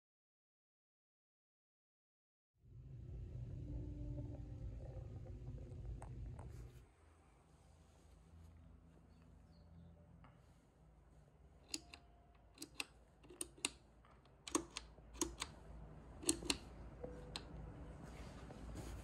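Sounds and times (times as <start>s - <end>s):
push-button switches clicking: 11.6s - 15.6s, 16.2s - 17.5s.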